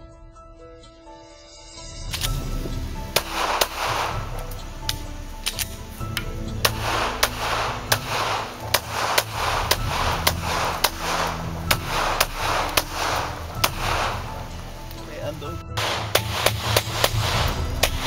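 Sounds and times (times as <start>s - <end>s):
background music with a beat: 0.0s - 18.0s
pistol shots: 3.2s - 4.3s, 6.6s - 14.3s, 15.8s - 18.0s.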